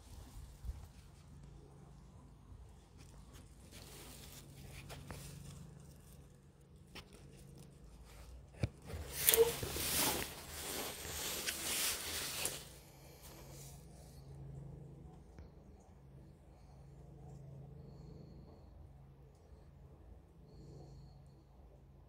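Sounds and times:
rustling and scraping of gloved hand: 0:00.0 - 0:14.2.

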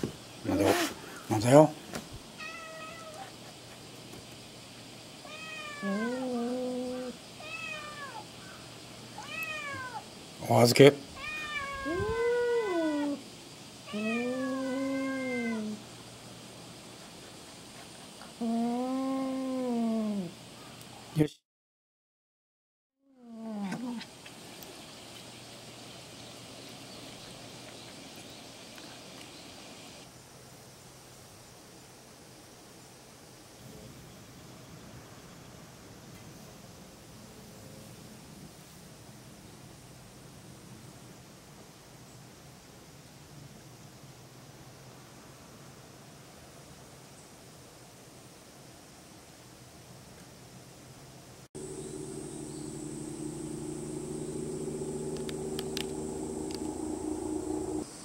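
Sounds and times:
faint high hiss: 0:00.0 - 0:21.4, 0:23.4 - 0:58.0
low drawn-out cat cry: 0:02.4 - 0:03.3, 0:05.2 - 0:08.3, 0:09.2 - 0:10.1, 0:11.1 - 0:13.2, 0:13.9 - 0:15.8
cats meowing: 0:02.4 - 0:03.4, 0:05.2 - 0:08.3, 0:09.2 - 0:10.0, 0:11.2 - 0:13.2, 0:13.9 - 0:15.8.

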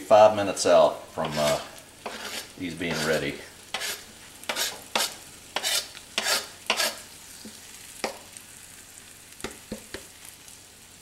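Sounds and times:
faint steady sizzle: 0:00.0 - 0:11.0
knife scraping a cutting board: 0:01.2 - 0:07.6.

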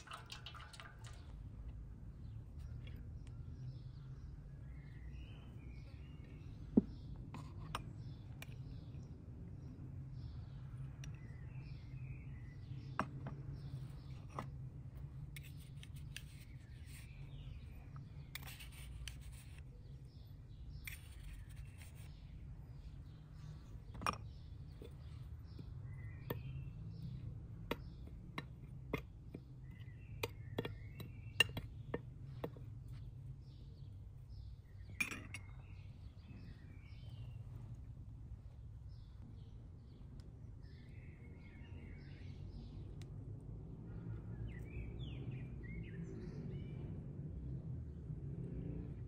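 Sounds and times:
birds chirping faintly: 0:00.0 - 0:49.0
metal spoon clinking on ceramic: 0:35.0 - 0:35.5.

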